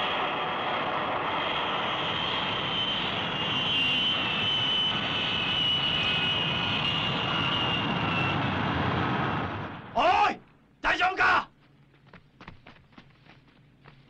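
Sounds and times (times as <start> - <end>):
jet engine rushing and whining: 0.0 - 10.0.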